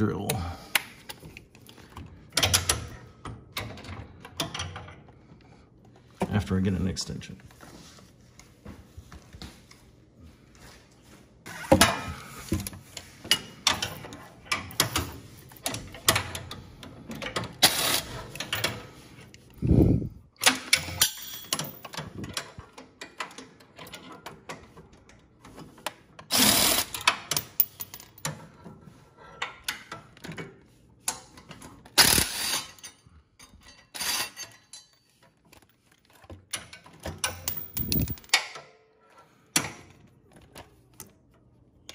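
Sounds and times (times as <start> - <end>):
power drill spinning bolts: 32.0 - 32.8
metal tools clanking: 37.2 - 38.4.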